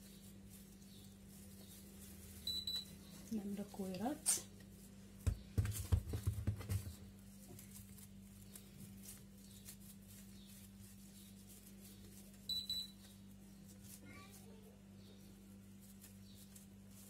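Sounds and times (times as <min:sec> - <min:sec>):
dough thuds and taps: 0:05.2 - 0:07.1.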